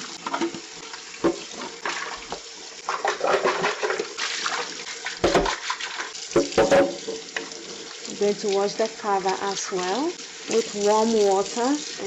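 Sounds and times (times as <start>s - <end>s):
faucet running into sink: 0.0s - 12.0s
sponge scrubbing plastic: 1.3s - 6.8s
plastic knocks and thumps: 5.2s - 5.6s, 6.4s - 7.2s.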